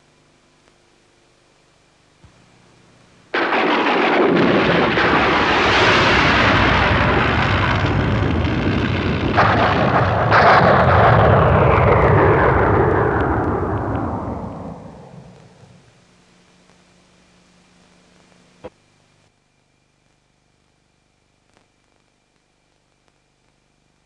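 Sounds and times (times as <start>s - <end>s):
thunder crack: 3.3s - 15.9s
rolling thunder rumble: 3.4s - 15.9s.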